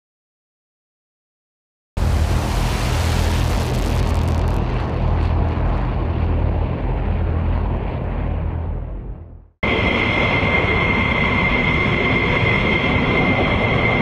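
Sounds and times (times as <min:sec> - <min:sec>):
jet engines roaring: 0:02.0 - 0:14.0.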